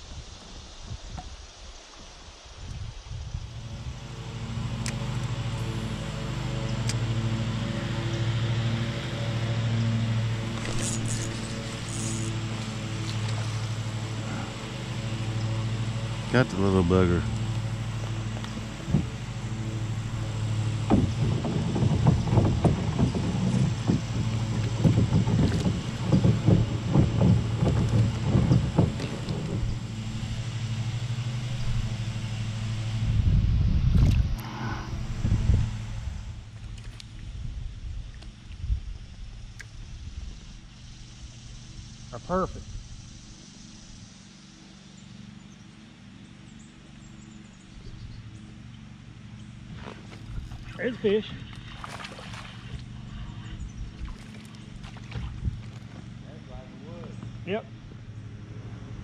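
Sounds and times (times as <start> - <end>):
steady low hum: 0.0 - 59.0
fishing reel clicks: 10.6 - 13.2.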